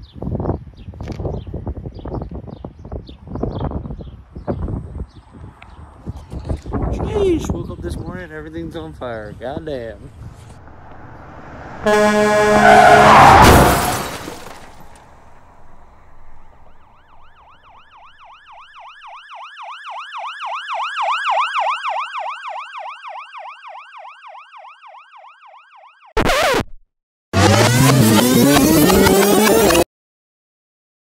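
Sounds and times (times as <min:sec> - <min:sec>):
loud crash with held tone: 0:10.6 - 0:16.9
emergency vehicle siren yelping: 0:10.7 - 0:14.2, 0:16.3 - 0:26.5
brief loud burst: 0:10.7 - 0:16.4.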